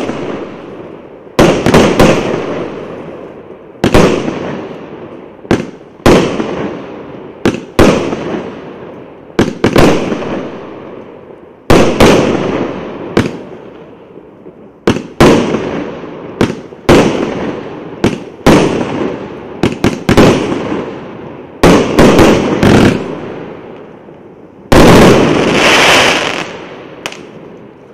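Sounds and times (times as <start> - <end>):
firework bangs: 0.0 - 11.0, 11.6 - 13.7, 14.8 - 27.9
loud firework burst: 24.7 - 27.3.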